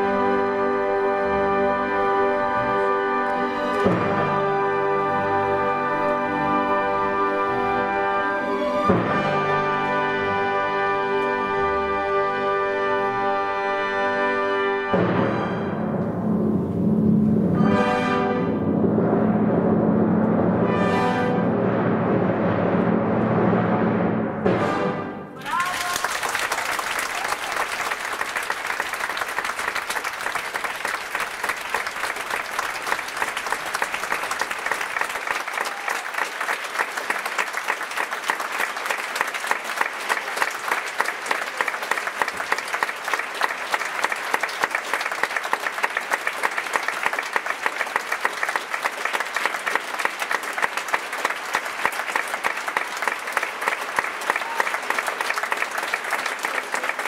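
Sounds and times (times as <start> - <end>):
large audience applauding: 2.3 - 8.8, 25.4 - 57.0.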